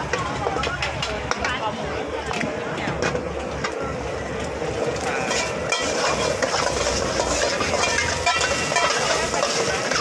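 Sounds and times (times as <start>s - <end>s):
eggs sizzling in oil: 4.9s - 10.0s
metal spatula scraping pan: 5.2s - 10.0s.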